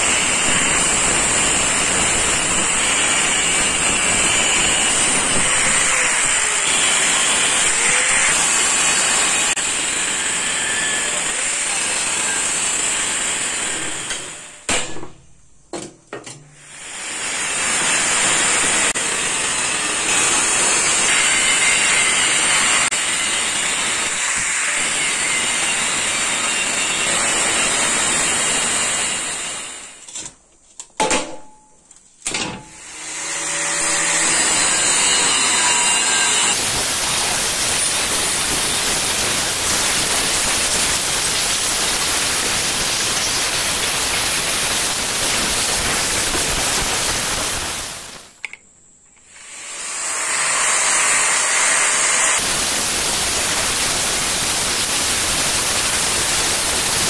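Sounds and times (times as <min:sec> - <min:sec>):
angle grinder cutting steel: 0:00.0 - 0:14.7, 0:16.6 - 0:30.0, 0:32.7 - 0:48.4, 0:49.3 - 0:57.0.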